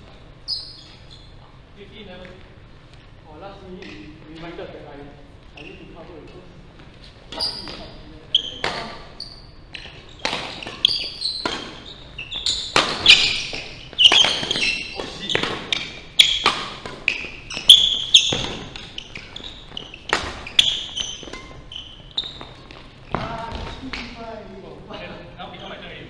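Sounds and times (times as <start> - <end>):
shoes squeaking on court: 0.4 - 3.1, 5.4 - 6.2, 6.8 - 24.2
racket striking shuttlecock: 12.5 - 19.4, 20.0 - 21.6.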